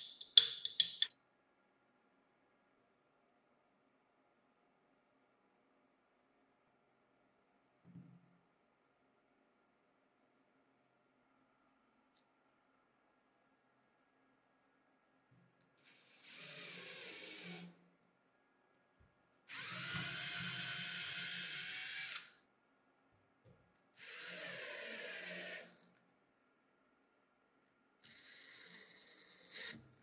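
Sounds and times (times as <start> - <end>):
cordless drill running: 15.9 - 17.6, 19.5 - 22.3, 24.0 - 25.8.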